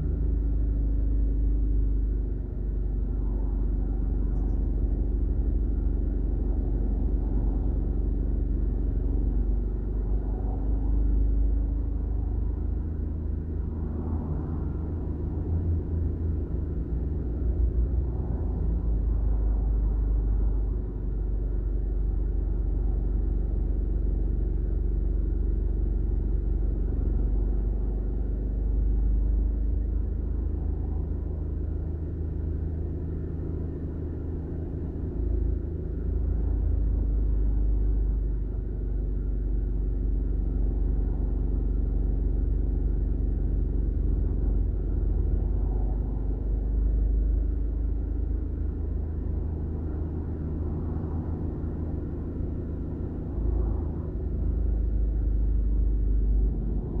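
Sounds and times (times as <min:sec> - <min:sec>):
low traffic rumble: 0:00.0 - 0:57.0
cars passing: 0:13.6 - 0:16.6, 0:48.6 - 0:55.2.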